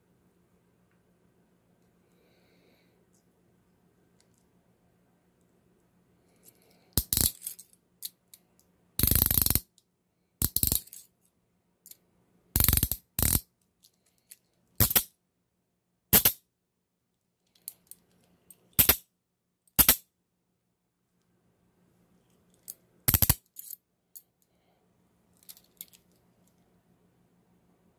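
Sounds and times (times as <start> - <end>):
steel parts clinking: 6.4 - 8.4, 10.4 - 11.1, 22.6 - 23.8
handcuff ratcheting clicks: 7.0 - 8.2, 9.0 - 9.7, 10.4 - 10.9, 12.6 - 13.4, 23.1 - 23.5.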